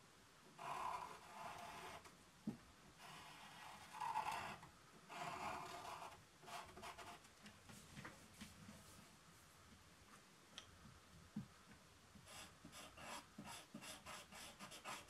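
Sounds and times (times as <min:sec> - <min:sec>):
pen scratching on paper: 0:00.6 - 0:02.0, 0:03.0 - 0:07.2, 0:12.2 - 0:15.0.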